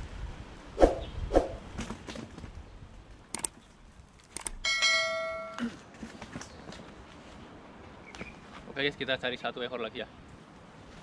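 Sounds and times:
sharp clicks: 3.3s - 3.6s, 4.2s - 4.6s
bell ding: 4.6s - 5.6s.

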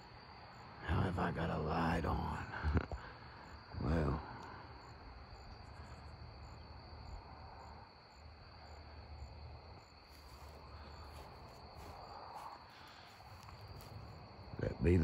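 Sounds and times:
crickets chirring: 0.0s - 15.0s.

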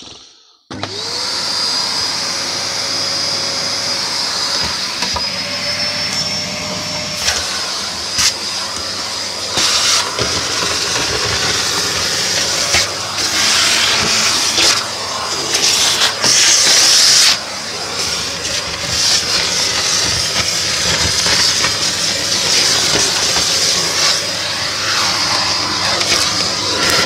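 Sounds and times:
vacuum cleaner running: 0.0s - 27.0s.

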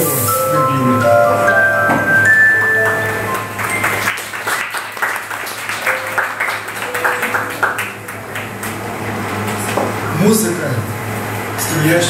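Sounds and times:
digital piano notes: 0.0s - 4.3s, 5.8s - 10.0s
audience applause: 2.2s - 9.7s.

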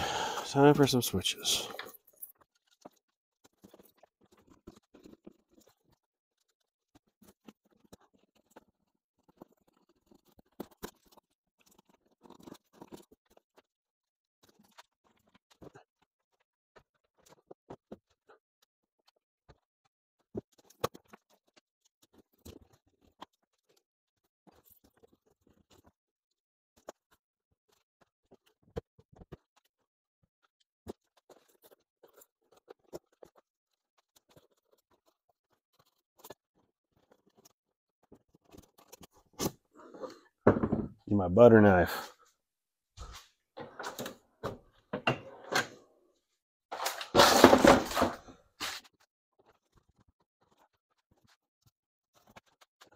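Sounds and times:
loud clatter of objects: 46.7s - 48.9s.

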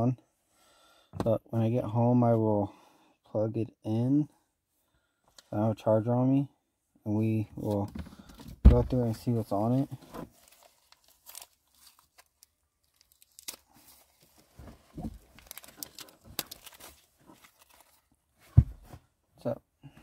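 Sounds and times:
plastic tape rustling and tearing: 9.6s - 18.1s.

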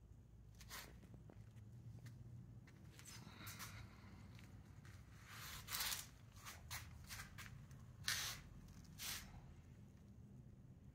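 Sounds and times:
rustling scuffing noises: 4.5s - 9.3s.

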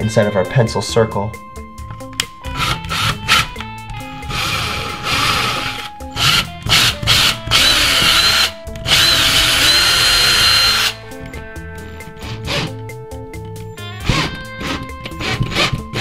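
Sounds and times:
cordless drill motor whine: 4.3s - 11.0s.

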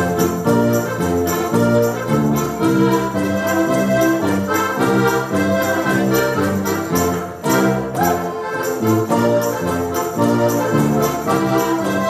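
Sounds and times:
button accordions playing a tune: 0.0s - 12.0s.

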